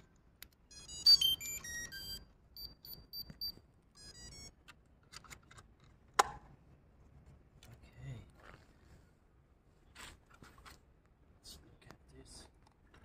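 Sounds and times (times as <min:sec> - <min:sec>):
short high beeps: 0:00.7 - 0:04.5.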